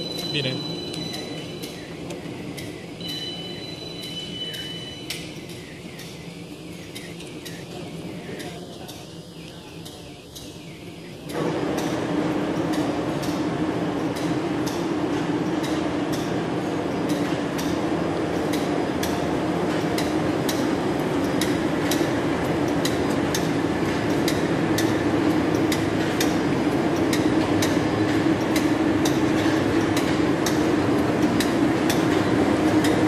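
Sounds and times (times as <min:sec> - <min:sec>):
machine mechanical hum: 0:00.0 - 0:33.0
sharp regular machine clicks: 0:18.4 - 0:33.0.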